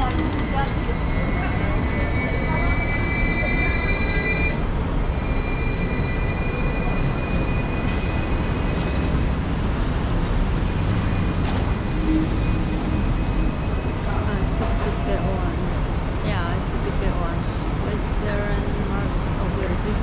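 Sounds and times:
tram rumbling along rails: 0.0 - 20.0.

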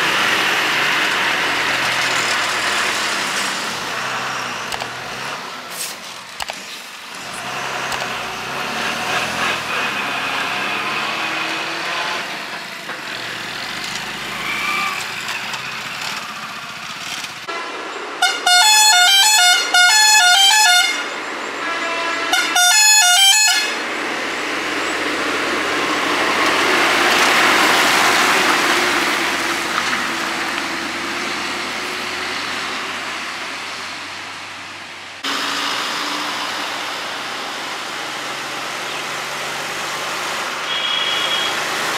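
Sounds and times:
heavy vehicle engines: 0.0 - 41.9
truck engine and tyre noise: 0.0 - 41.9
musical truck horn tune: 18.2 - 23.8, 40.7 - 41.6.

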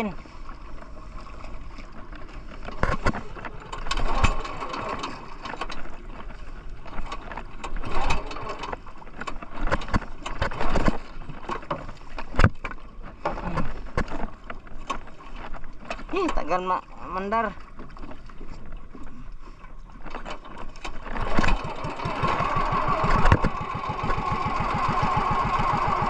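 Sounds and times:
water splashing against boat: 0.0 - 26.0
knocks aboard boat: 20.3 - 26.0.

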